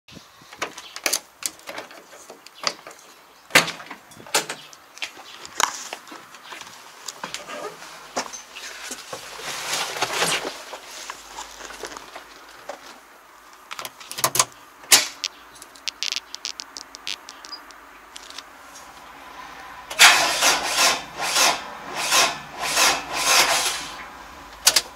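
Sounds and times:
sharp clicks: 13.7 - 18.5.

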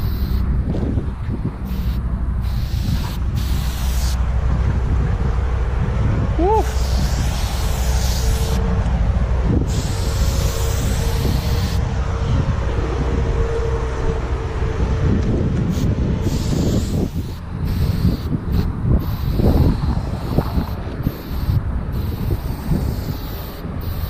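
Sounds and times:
spray paint can hissing: 0.0 - 0.4, 1.6 - 4.2, 6.5 - 8.6, 9.6 - 11.8, 15.7 - 24.0
wind on microphone: 0.0 - 24.0.

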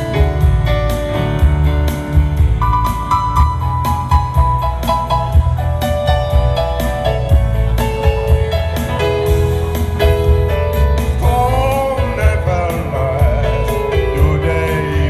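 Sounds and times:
band playing slow ballad: 0.0 - 15.0
man singing: 11.2 - 15.0.

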